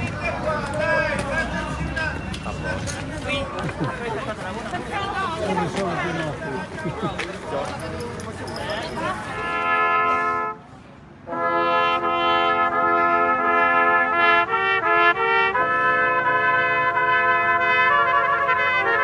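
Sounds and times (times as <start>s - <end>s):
brass ensemble playing chords: 9.3s - 10.6s, 11.2s - 19.0s.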